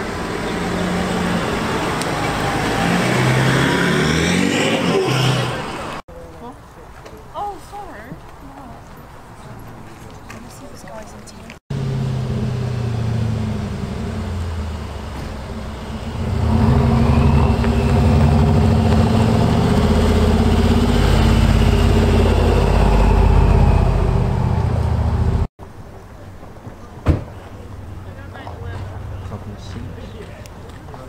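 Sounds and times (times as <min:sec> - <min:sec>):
car engine driving past: 0:00.0 - 0:06.0, 0:11.7 - 0:25.5.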